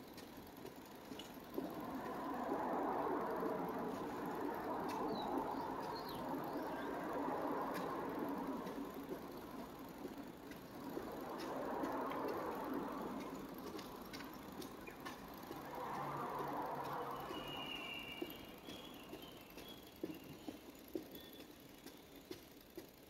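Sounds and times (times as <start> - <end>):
rumbling tunnel background noise: 0.0 - 23.0
faint clicks: 3.7 - 23.0
small high chirps: 17.1 - 22.4.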